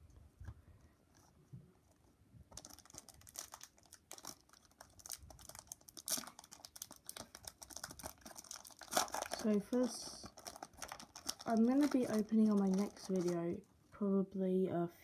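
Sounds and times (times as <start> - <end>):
foil wrapper crinkling: 2.5 - 13.7.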